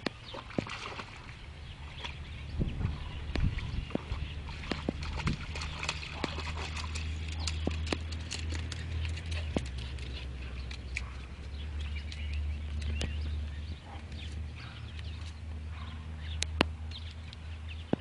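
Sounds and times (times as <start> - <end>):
water splashing: 0.0 - 14.3
steady low rumble: 0.0 - 18.0.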